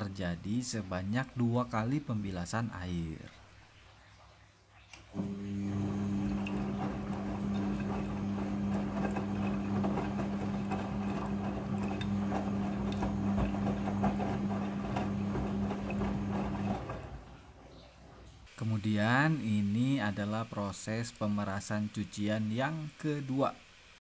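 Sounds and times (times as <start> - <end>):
washing machine motor hum: 5.1 - 17.6
wet laundry sloshing: 6.0 - 17.3.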